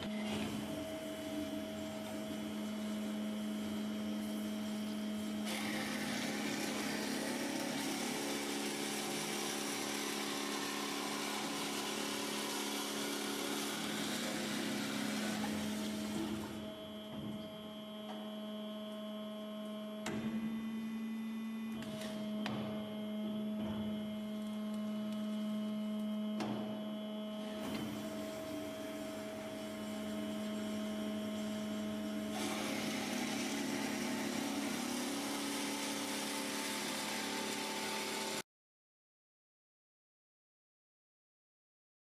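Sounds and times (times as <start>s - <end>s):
band saw humming: 0.0s - 21.0s, 22.1s - 38.4s.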